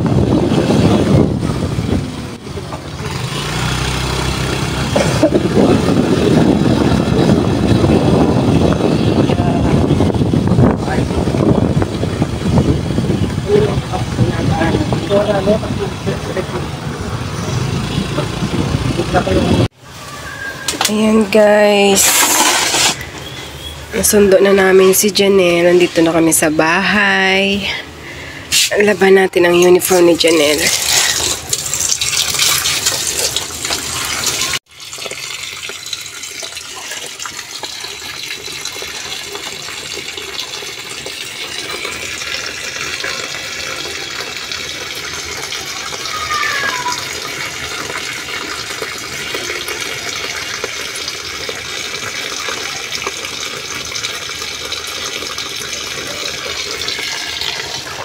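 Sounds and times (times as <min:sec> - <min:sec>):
tap water pouring into basin: 0:21.9 - 0:23.2, 0:29.6 - 0:58.0
water splashing on wet cloth: 0:30.5 - 0:40.6.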